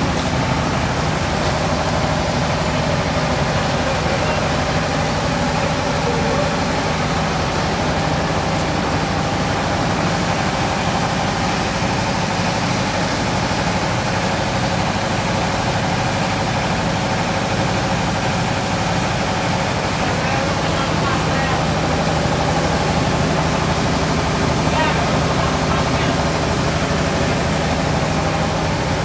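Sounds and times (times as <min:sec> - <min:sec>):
scooter engine idling: 0:00.0 - 0:13.4.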